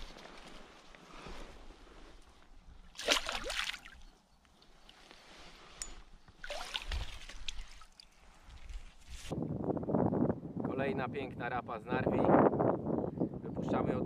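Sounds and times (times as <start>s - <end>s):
water splashing: 2.9s - 4.1s, 6.4s - 8.7s.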